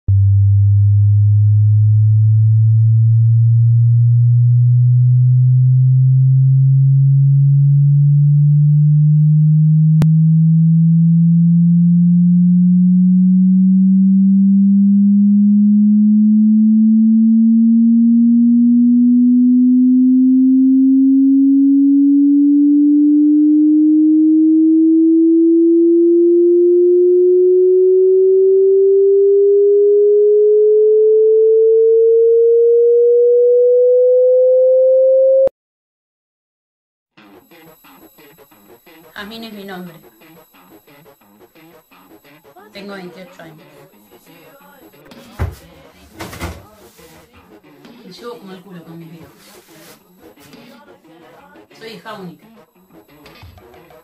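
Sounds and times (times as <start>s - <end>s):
rising electronic tone: 0.1s - 35.5s, 49.8s - 54.0s.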